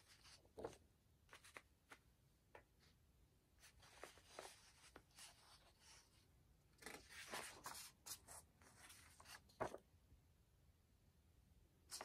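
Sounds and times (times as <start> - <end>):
glossy paper rustling: 6.8 - 9.8.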